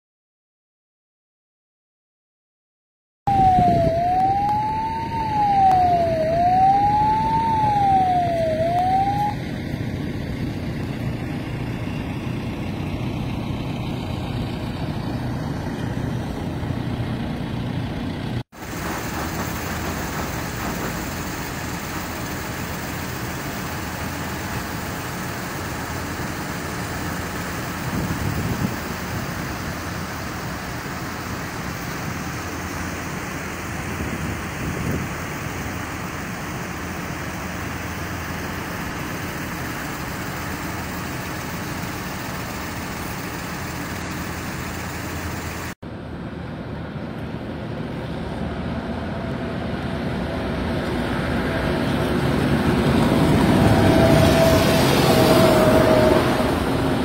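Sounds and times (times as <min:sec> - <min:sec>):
siren wailing: 0:03.3 - 0:09.7
tractor engines rumbling: 0:03.3 - 0:57.0.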